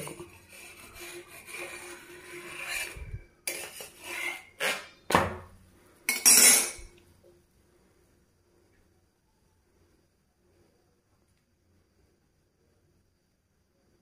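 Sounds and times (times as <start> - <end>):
metal utensils clinking on pan: 6.1 - 6.9.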